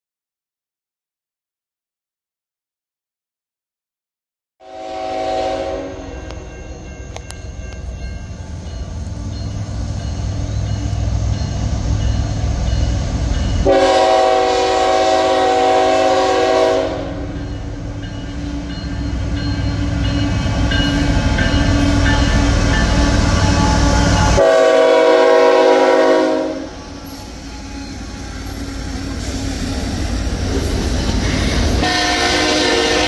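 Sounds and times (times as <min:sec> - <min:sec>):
locomotive air horn blast: 0:04.6 - 0:06.4, 0:13.6 - 0:17.3, 0:23.1 - 0:26.8, 0:31.2 - 0:33.0.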